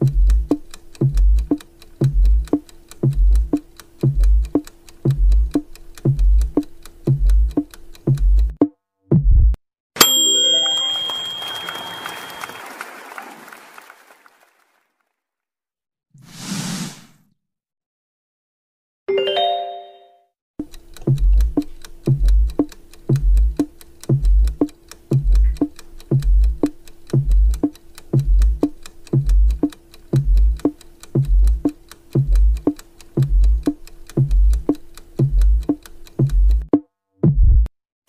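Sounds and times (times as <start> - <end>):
ticking beat with low thumps: 0.0 - 9.6, 20.6 - 37.7
held tone: 10.0 - 12.6
short chime: 10.0 - 12.8, 19.1 - 20.2.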